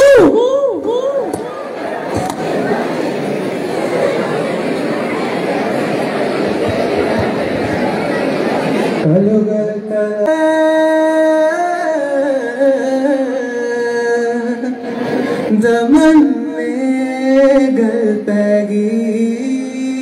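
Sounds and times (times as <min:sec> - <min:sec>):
man singing into a microphone: 0:09.0 - 0:20.0.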